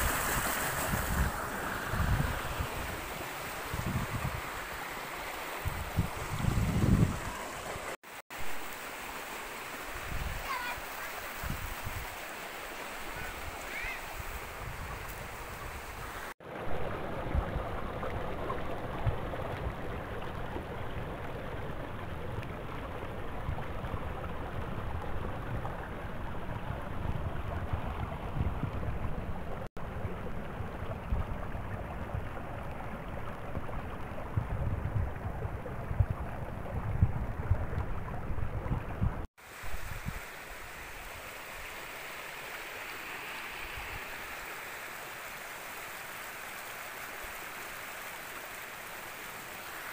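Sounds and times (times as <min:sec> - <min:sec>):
wind gusting on microphone: 0:00.0 - 0:04.8, 0:05.5 - 0:07.6, 0:10.0 - 0:10.5, 0:11.4 - 0:12.2, 0:13.2 - 0:16.3, 0:23.4 - 0:29.6, 0:33.6 - 0:40.3
stream running over rocks: 0:00.0 - 0:49.9.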